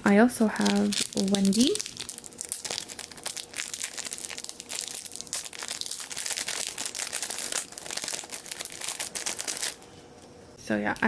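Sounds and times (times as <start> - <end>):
plastic bag crinkling: 0.5 - 10.3.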